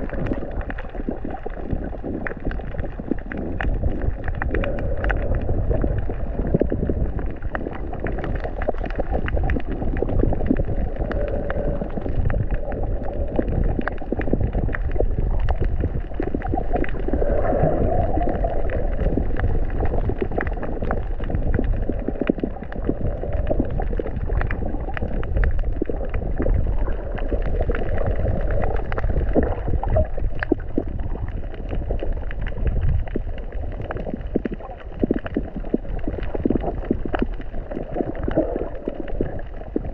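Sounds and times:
crackle of fine clicks: 0:00.0 - 0:39.9
underwater water rush: 0:00.0 - 0:39.9.

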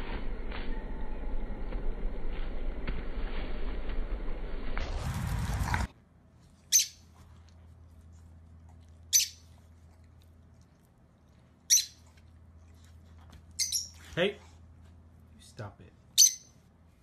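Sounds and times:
lovebird shrill calls: 0:13.6 - 0:13.9, 0:16.2 - 0:16.5.

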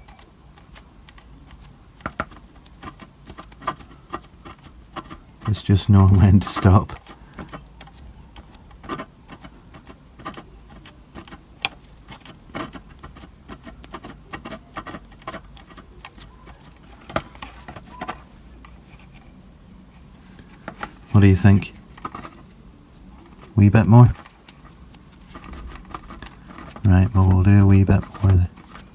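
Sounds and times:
sponge dabbing paint: 0:00.0 - 0:19.4, 0:20.0 - 0:28.9.

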